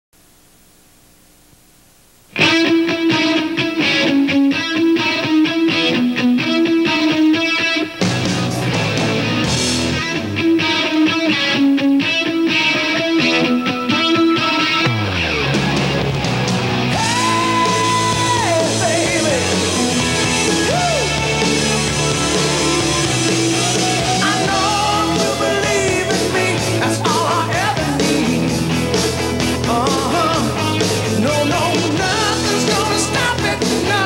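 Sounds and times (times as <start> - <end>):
rock song with singing: 2.4 - 34.0.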